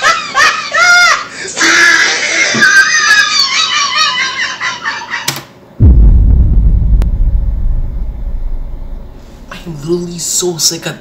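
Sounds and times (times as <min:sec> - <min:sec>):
loud low rumble: 0:05.8 - 0:10.3.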